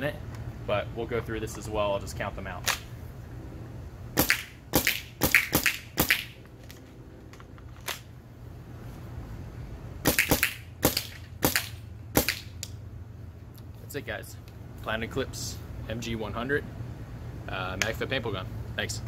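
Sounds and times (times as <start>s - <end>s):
paintball marker shots: 4.2s - 6.4s, 10.0s - 12.5s.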